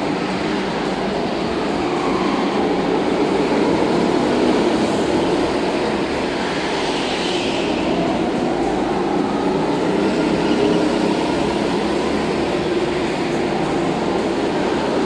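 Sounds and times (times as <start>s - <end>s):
go-kart engines droning: 0.0s - 15.0s.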